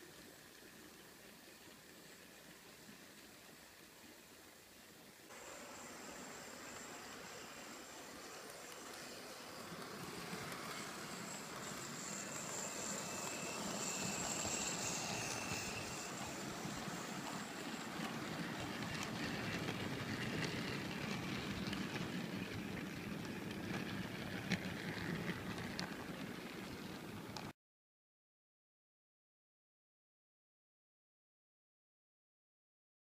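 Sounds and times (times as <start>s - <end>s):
high motor whine: 5.3s - 27.5s
wheels clattering on track: 7.7s - 27.5s.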